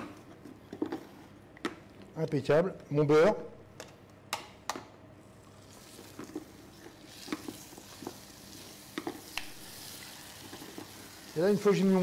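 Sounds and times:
butter sizzling in a saucepan: 0:05.6 - 0:12.0.

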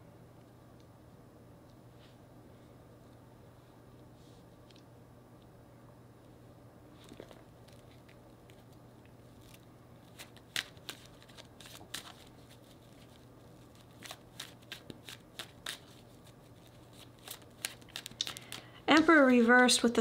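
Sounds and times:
cards being shuffled: 0:07.0 - 0:19.5.

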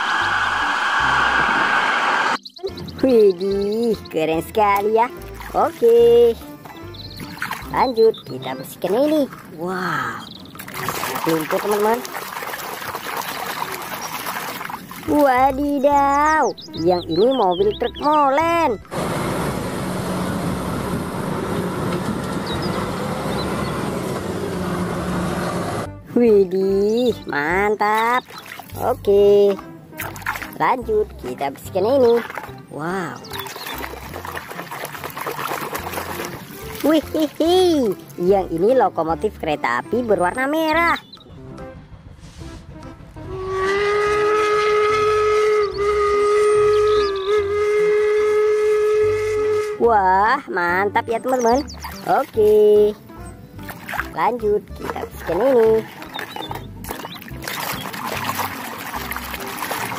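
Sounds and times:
steam locomotive whistle: 0:00.0 - 0:02.4, 0:43.3 - 0:50.0
truck diesel engine running: 0:17.9 - 0:26.1
traffic noise: 0:18.4 - 0:26.0.

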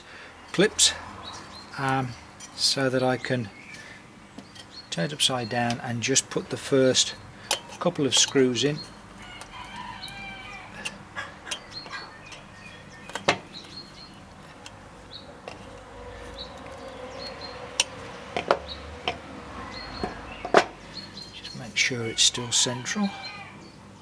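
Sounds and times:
hand tools clicking and knocking: 0:07.4 - 0:10.2, 0:10.8 - 0:14.8, 0:15.4 - 0:15.9, 0:17.7 - 0:19.3, 0:19.9 - 0:20.8
chickens clucking: 0:07.5 - 0:23.4.

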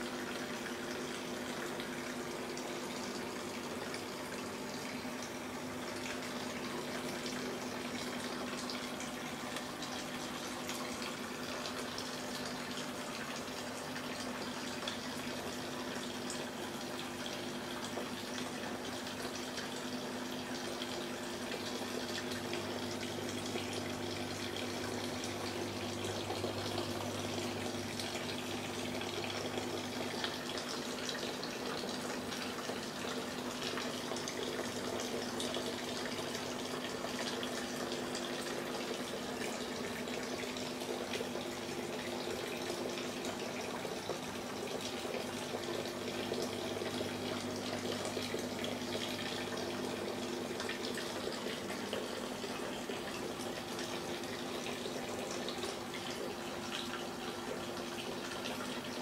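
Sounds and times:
circulating water rushing: 0:00.0 - 0:59.0.

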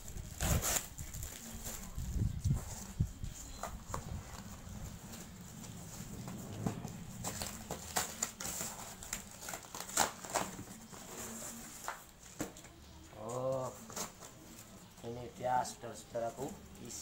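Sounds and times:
cardboard box tearing and rustling: 0:00.2 - 0:01.8, 0:07.2 - 0:12.0.

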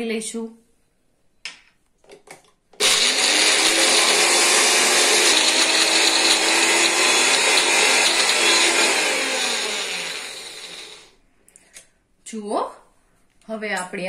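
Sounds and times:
mixer grinder motor whining: 0:02.8 - 0:11.2.

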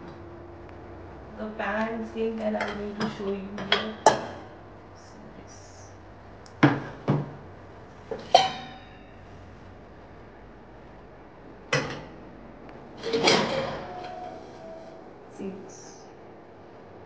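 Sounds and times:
metal pots and pans clanking: 0:08.1 - 0:09.2, 0:13.0 - 0:14.9.

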